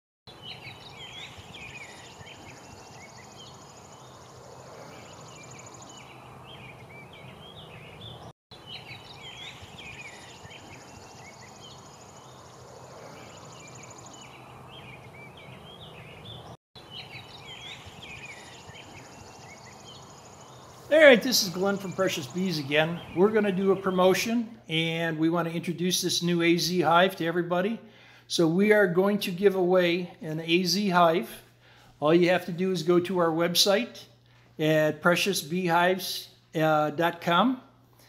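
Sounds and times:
small birds chirping: 0:00.3 - 0:27.2.

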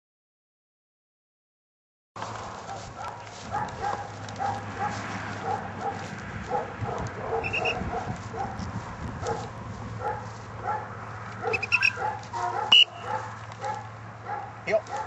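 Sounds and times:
dog whining and yipping: 0:07.4 - 0:07.8, 0:11.4 - 0:13.2.

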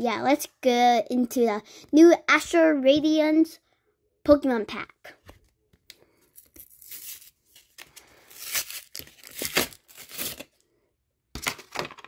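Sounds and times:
foil wrapper tearing and crinkling: 0:06.4 - 0:10.6.

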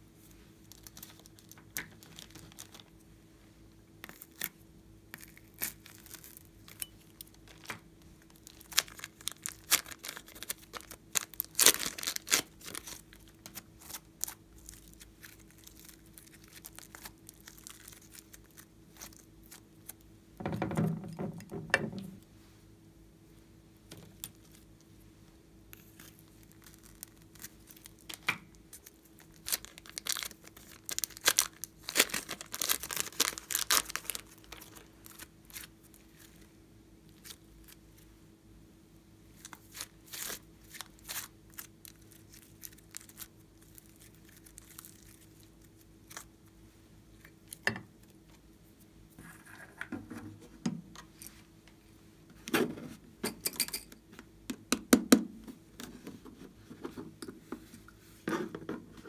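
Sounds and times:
plastic film crinkling and tearing: 0:00.7 - 0:02.9, 0:05.2 - 0:20.0, 0:25.8 - 0:36.4, 0:39.4 - 0:46.3
slime handling crackles: 0:05.2 - 0:20.0, 0:25.7 - 0:36.4.

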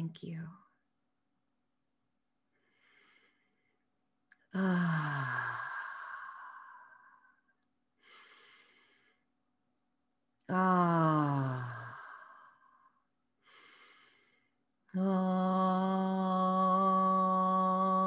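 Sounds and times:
woman breathing deeply: 0:02.5 - 0:03.8, 0:04.6 - 0:09.3, 0:11.1 - 0:14.6
woman sighing: 0:04.5 - 0:07.3.

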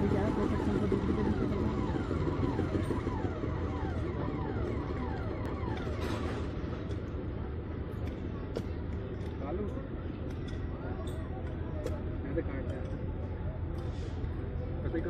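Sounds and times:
motor rumbling: 0:00.0 - 0:09.7.

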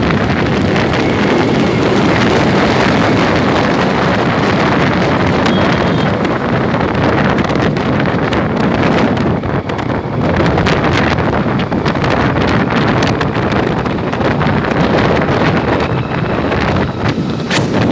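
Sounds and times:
road noise rumble: 0:00.0 - 0:17.9
wind buffeting microphone: 0:00.0 - 0:17.9.

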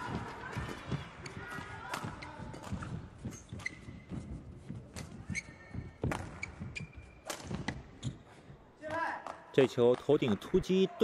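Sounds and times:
rackets hitting shuttlecock: 0:00.1 - 0:03.8, 0:06.0 - 0:07.9
shoes squeaking on court: 0:00.5 - 0:08.4.

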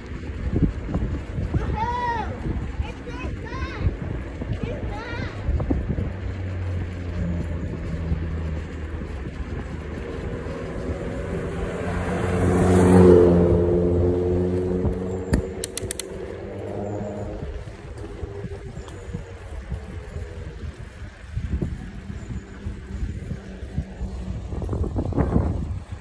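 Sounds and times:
car passing: 0:06.1 - 0:26.0
sharp clicks: 0:15.2 - 0:16.6.

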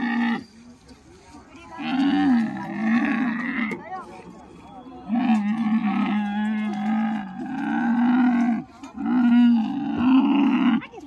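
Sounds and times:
camel groaning: 0:01.7 - 0:03.8, 0:05.1 - 0:11.0.

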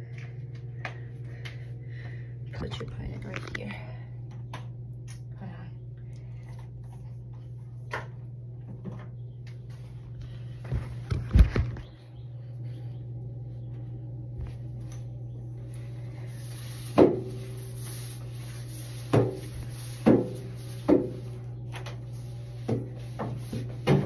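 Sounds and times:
steady low hum: 0:00.0 - 0:24.0
mop knocking against floor: 0:16.9 - 0:17.4, 0:19.1 - 0:22.0, 0:22.6 - 0:24.0.

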